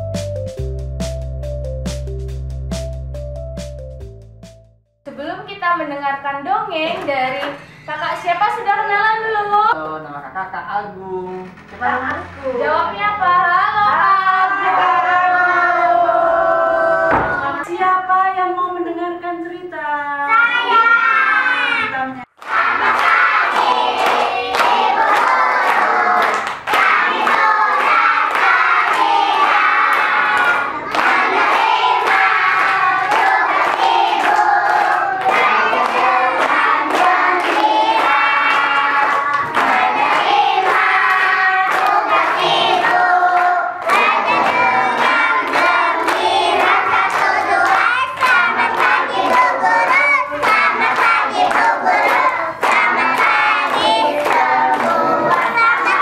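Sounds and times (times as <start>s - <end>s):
children and adults singing: 13.3s - 17.7s, 20.4s - 56.0s
hands clapping in rhythm: 22.4s - 56.0s.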